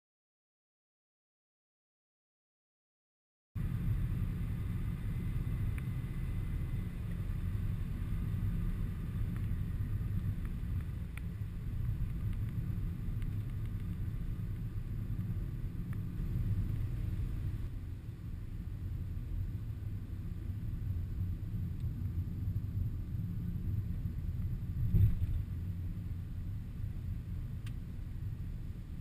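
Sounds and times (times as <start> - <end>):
car interior road rumble: 3.6 - 29.0
faint clicks: 10.3 - 14.7.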